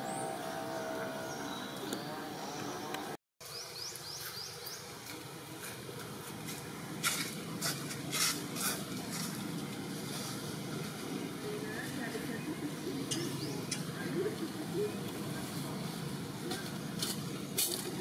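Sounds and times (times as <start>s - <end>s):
sharp scratchy rustles: 5.6s - 11.4s.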